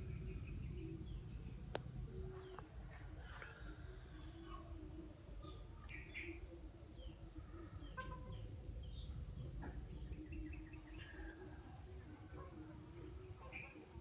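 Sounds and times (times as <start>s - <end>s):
low background noise: 0.0s - 14.0s
small birds chirping: 0.0s - 14.0s.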